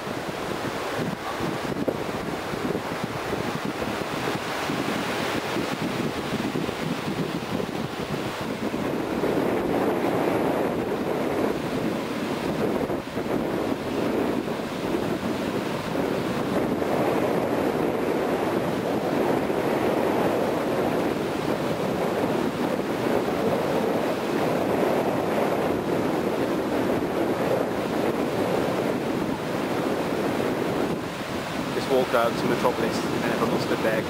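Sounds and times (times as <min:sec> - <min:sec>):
waves breaking: 0:00.0 - 0:34.0
wind buffeting microphone: 0:00.0 - 0:34.0.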